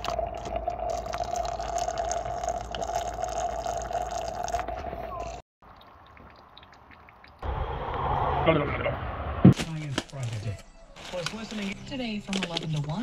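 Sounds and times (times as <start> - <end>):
fluid streaming into bucket: 0.0 - 7.4.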